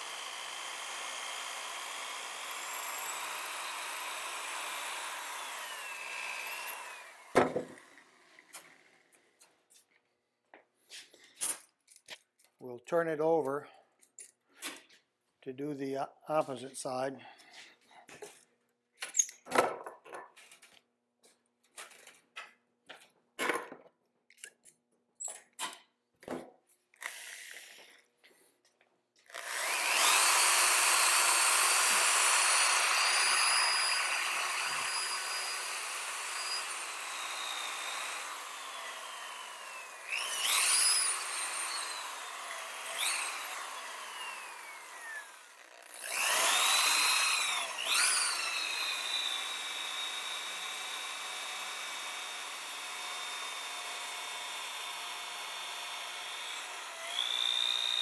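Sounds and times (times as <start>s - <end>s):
electric drill with wire brush whining: 0.0s - 9.0s, 27.0s - 28.1s, 29.2s - 58.0s.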